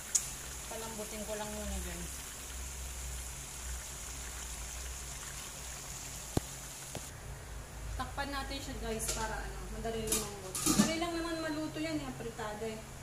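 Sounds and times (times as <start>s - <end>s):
chicken sizzling in a pan: 0.0s - 7.1s.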